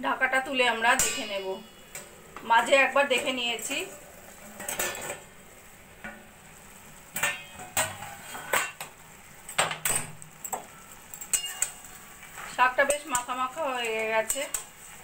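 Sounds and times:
metal cookware clinking: 0.7s - 5.3s, 7.1s - 8.9s, 9.5s - 12.0s, 12.6s - 14.8s.

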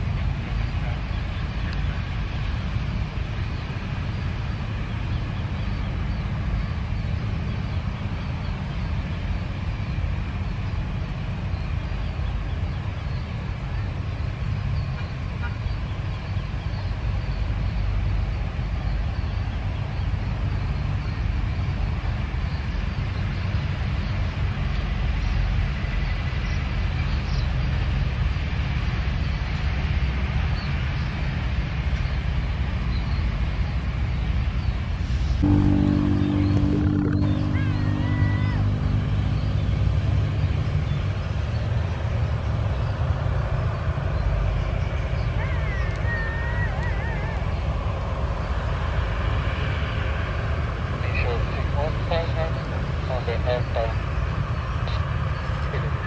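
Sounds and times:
passing road traffic: 0.0s - 56.0s
jet engines idling: 33.5s - 45.2s, 46.8s - 56.0s.

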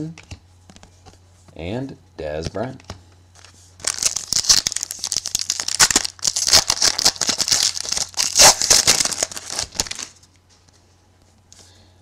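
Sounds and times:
plastic wrapper crinkling and tearing: 3.4s - 10.2s.

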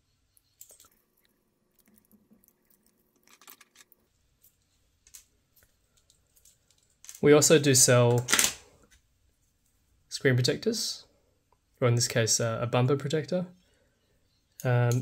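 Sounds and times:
small objects clicking and tapping: 0.6s - 7.2s.

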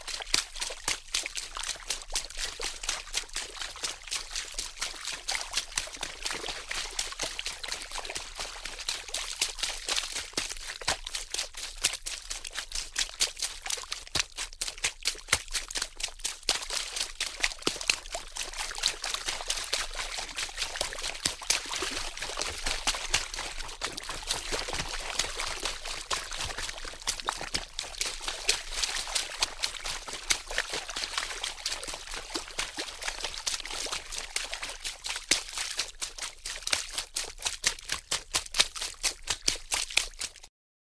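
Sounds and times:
water splashing: 16.5s - 40.5s.

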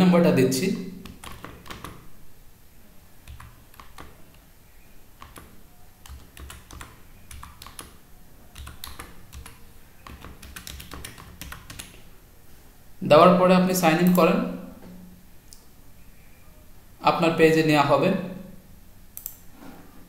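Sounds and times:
laptop keyboard typing: 1.0s - 2.1s, 3.2s - 4.5s, 5.1s - 12.1s.

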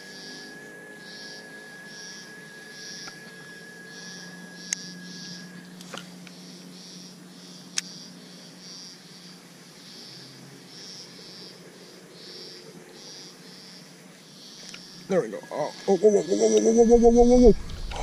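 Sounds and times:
insects chirping in high pulses: 0.0s - 18.0s
low steady hum: 0.0s - 18.0s.

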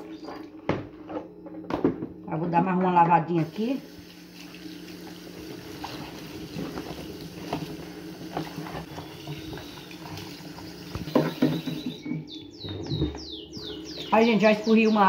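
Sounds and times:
tap water running: 3.4s - 12.2s
bird chirping: 8.9s - 10.1s, 11.0s - 15.0s.

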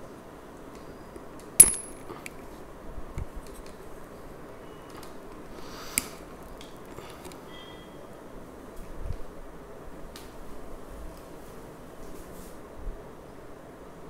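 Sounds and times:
hard object clinking on surface: 1.6s - 2.1s.

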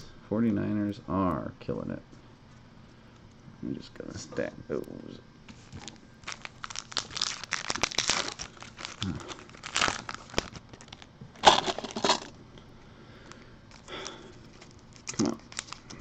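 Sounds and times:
plastic and foil wrappers crinkling: 5.5s - 12.4s, 13.2s - 16.0s.

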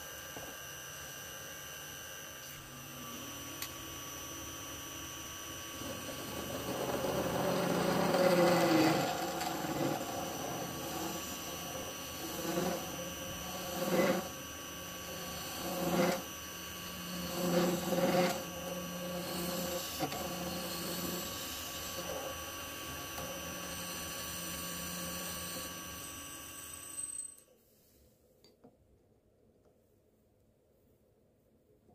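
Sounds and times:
lathe motor whine: 0.0s - 27.4s
turning tool scraping brass: 5.7s - 26.4s.

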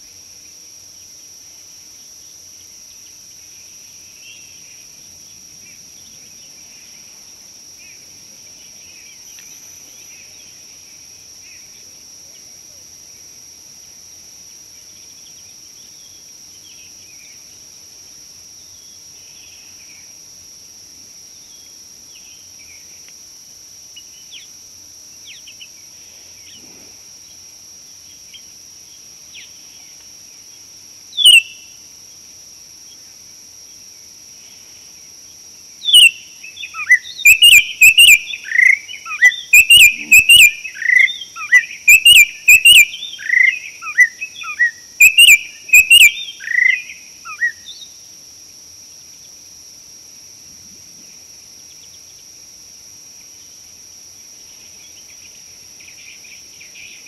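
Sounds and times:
high-pitched insect drone: 21.3s - 49.6s
bird chirping: 35.9s - 47.9s.

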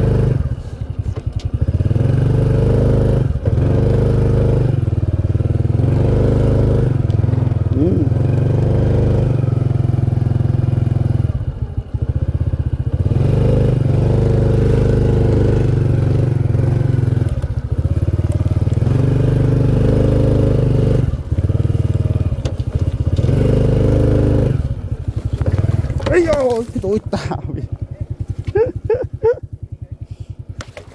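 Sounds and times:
motorcycle engine running: 0.0s - 30.9s.

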